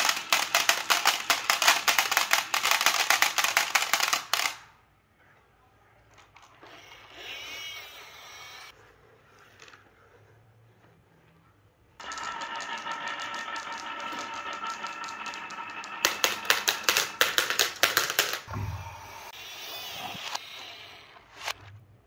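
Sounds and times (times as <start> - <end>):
marbles rolling on wooden track: 0.0 - 4.6, 12.0 - 18.5
marbles clacking in plastic trailer: 0.0 - 4.7, 12.0 - 18.5.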